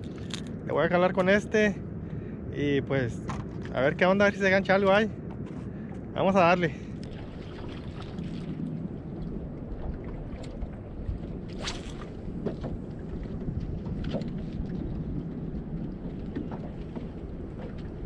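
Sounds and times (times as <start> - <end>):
wind buffeting microphone: 0.0 - 18.0
water lapping against boat: 4.9 - 18.0
brief swish: 11.5 - 12.1.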